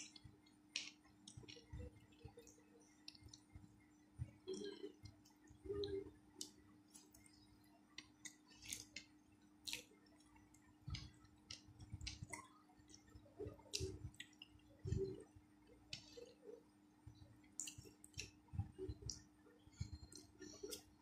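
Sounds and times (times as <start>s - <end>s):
chewing: 8.0s - 15.2s.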